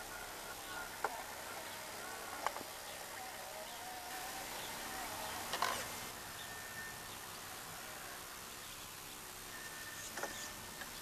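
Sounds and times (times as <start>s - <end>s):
faint steady hiss: 0.0s - 11.0s
thin high whine: 3.1s - 8.2s, 9.4s - 11.0s.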